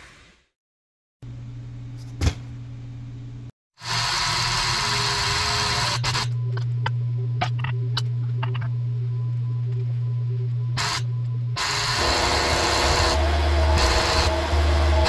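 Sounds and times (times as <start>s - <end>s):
low motor hum: 1.2s - 3.5s, 6.0s - 15.0s.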